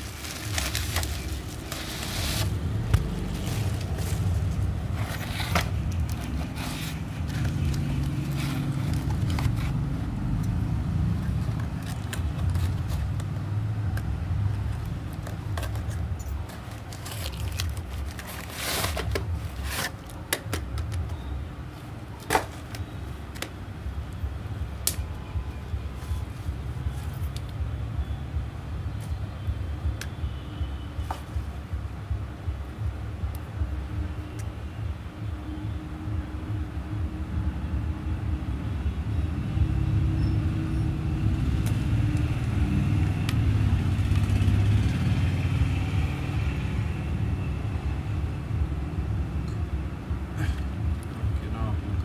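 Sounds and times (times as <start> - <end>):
cardboard box scraping: 0.0 - 9.8, 17.0 - 20.0
bubble wrap crinkling: 0.0 - 9.9, 14.6 - 20.2
tape being peeled: 0.0 - 21.2.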